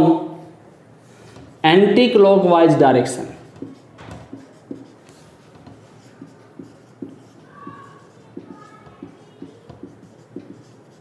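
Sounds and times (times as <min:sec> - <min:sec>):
marker writing on whiteboard: 0:00.6 - 0:02.0, 0:03.1 - 0:11.0
marker squeaks: 0:03.4 - 0:11.0.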